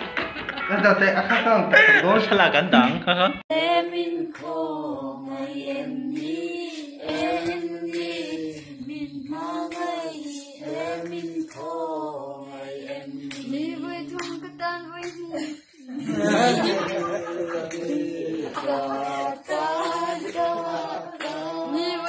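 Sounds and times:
woman chanting: 13.1s - 17.2s.

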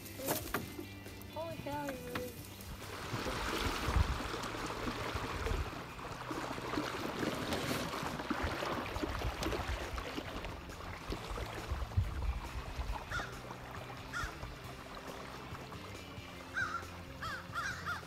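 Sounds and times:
choppy lake water: 0.0s - 18.0s
wind gusting against microphone: 3.3s - 4.4s.

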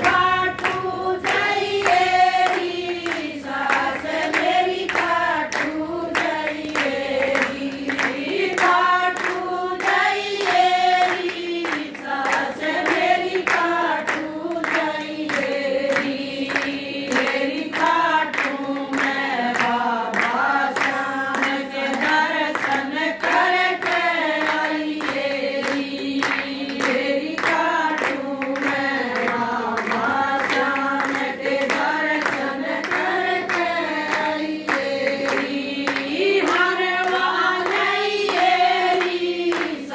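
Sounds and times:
hands clapping in rhythm: 0.0s - 39.9s
women singing together: 0.0s - 39.9s.

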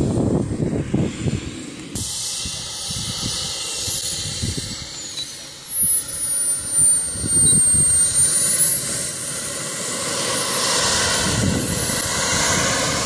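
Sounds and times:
low gusty noise: 0.0s - 5.1s, 5.8s - 13.0s
model jet turbine whine: 0.0s - 13.0s.

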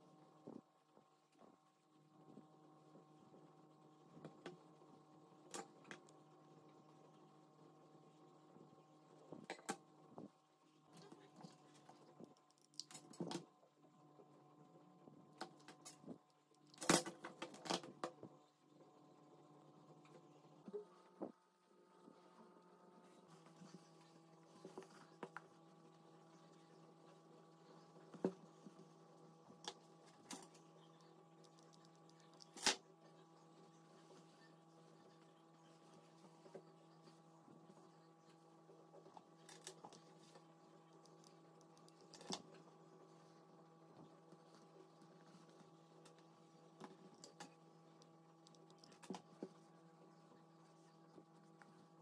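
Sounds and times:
faint steady hum: 0.0s - 52.0s.

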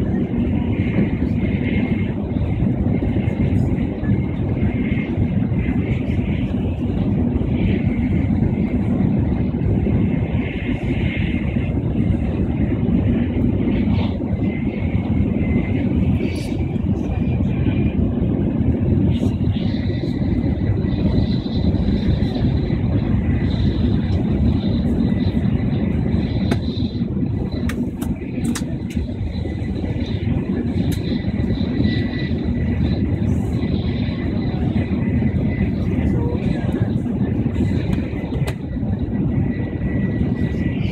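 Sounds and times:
train rumbling at speed: 0.0s - 40.9s.

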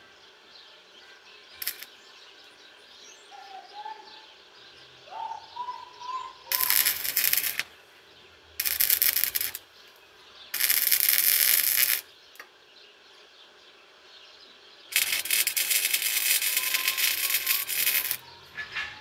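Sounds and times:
welder arc crackling: 1.6s - 1.9s, 6.5s - 7.8s, 8.6s - 9.7s, 10.5s - 12.5s, 14.9s - 18.5s.

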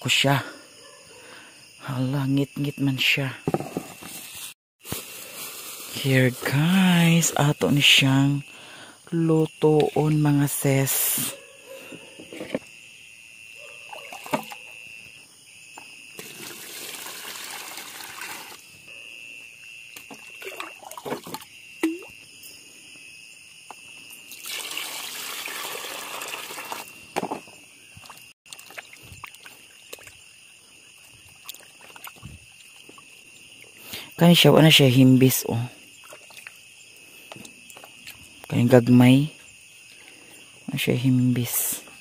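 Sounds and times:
water pouring into a basin: 16.2s - 18.6s, 24.3s - 26.9s
small water splashes: 20.0s - 22.2s, 24.3s - 26.9s, 28.0s - 33.8s, 36.0s - 36.6s.

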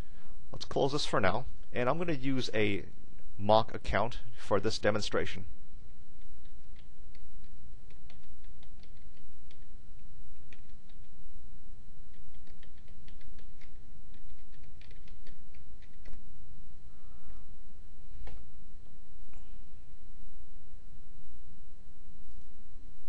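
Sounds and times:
steady low hum: 0.0s - 23.0s
keyboard typing clicks: 6.2s - 11.2s, 12.1s - 16.2s.

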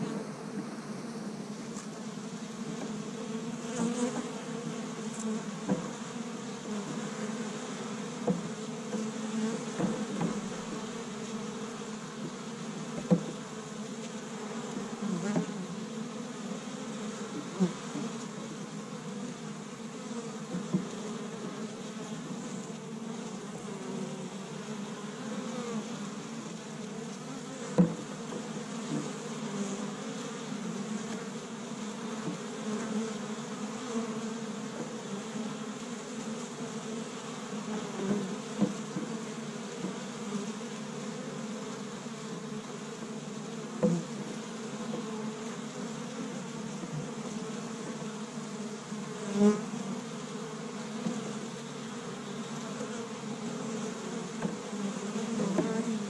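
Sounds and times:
honey bees buzzing: 0.0s - 56.0s.

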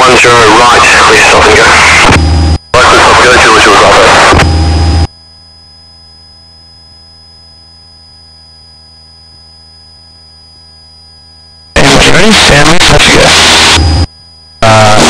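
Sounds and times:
electrical hum: 0.0s - 15.0s
high-pitched whine: 0.0s - 15.0s.

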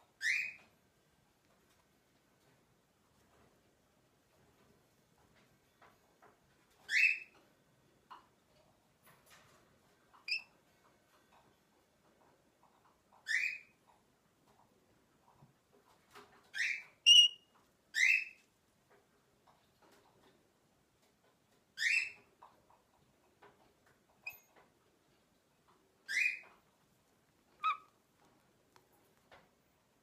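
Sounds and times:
lorikeet chirping: 0.2s - 0.6s, 16.6s - 17.4s, 18.0s - 18.4s, 26.1s - 26.5s, 27.6s - 27.9s.

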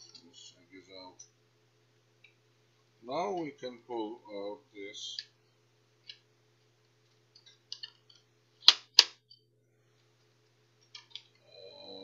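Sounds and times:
plastic clips snapping: 7.4s - 9.2s.

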